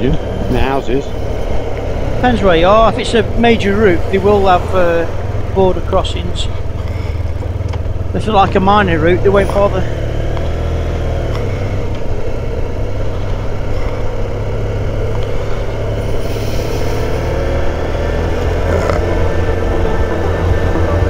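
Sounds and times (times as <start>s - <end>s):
motorcycle engine rumble: 0.0s - 21.0s
wind rumble: 0.0s - 21.0s.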